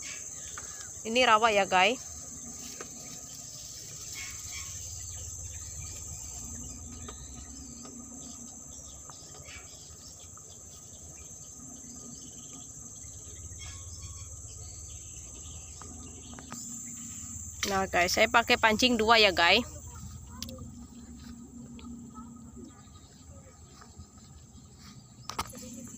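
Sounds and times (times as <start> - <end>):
insects droning: 0.0 - 25.9
low rumble: 11.8 - 24.8.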